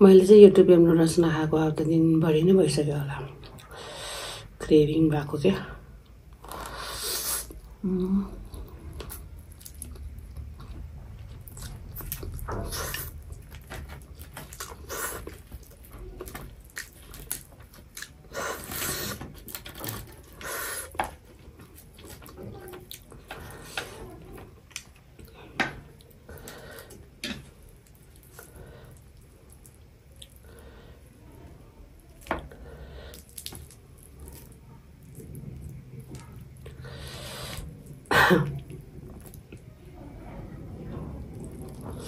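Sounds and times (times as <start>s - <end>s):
person slurping noodles: 6.4s - 7.6s.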